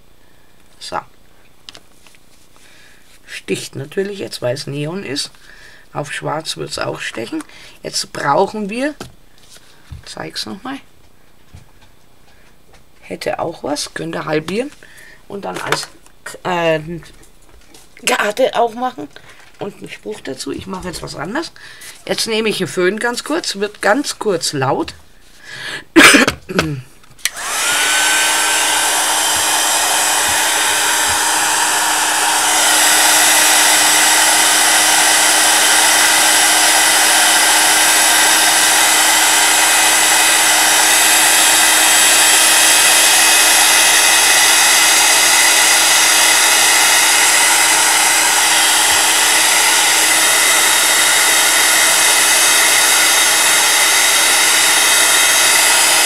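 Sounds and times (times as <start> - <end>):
heat tool blowing hot air: 27.2 - 56.0.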